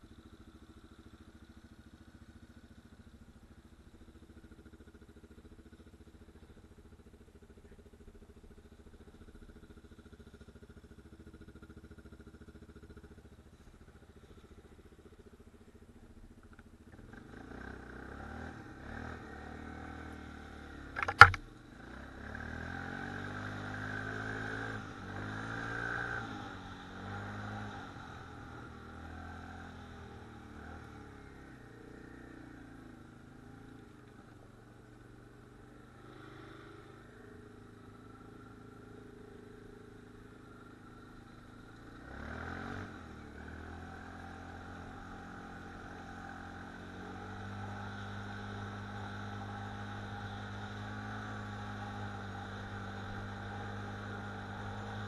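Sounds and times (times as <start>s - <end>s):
quad bike engine revving: 16.9s - 34.0s, 35.5s - 55.0s
sharp knock: 21.0s - 21.4s.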